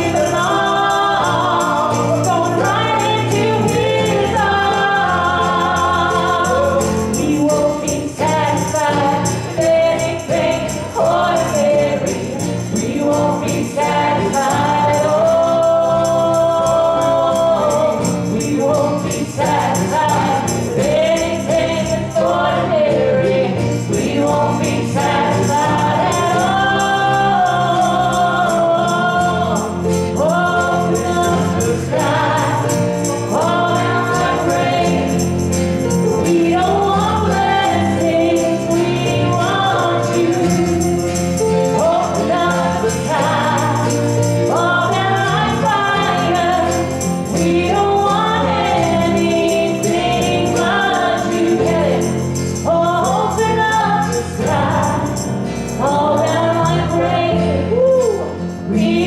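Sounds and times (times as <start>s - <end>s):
group singing gospel: 0.0s - 59.0s
instrumental accompaniment: 0.0s - 59.0s.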